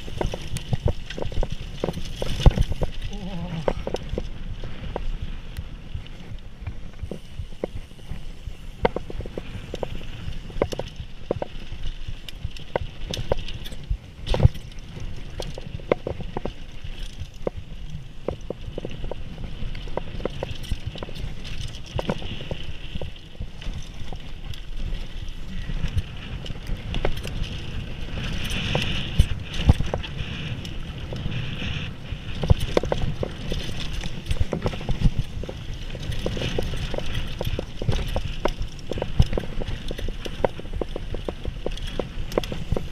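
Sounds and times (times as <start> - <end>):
knocks and clatters over bumps: 0.0 - 5.2, 6.1 - 42.9
bike rattling: 0.0 - 42.9
bike tyres rumbling over dirt: 0.0 - 42.9.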